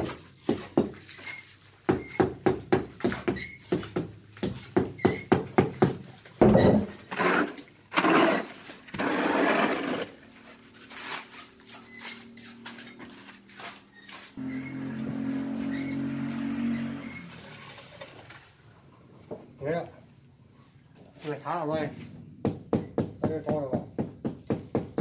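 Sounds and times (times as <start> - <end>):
metal scoop scraping wet concrete: 6.7 - 18.6.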